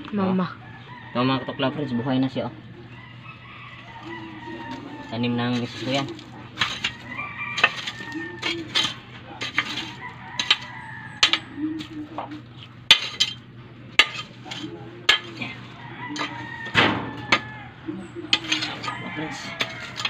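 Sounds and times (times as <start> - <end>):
metal tool striking gravelly soil: 5.5 - 12.0, 12.9 - 13.4, 14.0 - 17.6, 18.3 - 20.0.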